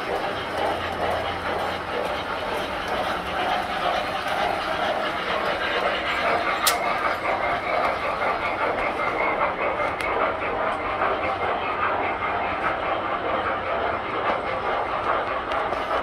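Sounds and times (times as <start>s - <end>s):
model trains running on track: 0.0s - 16.0s.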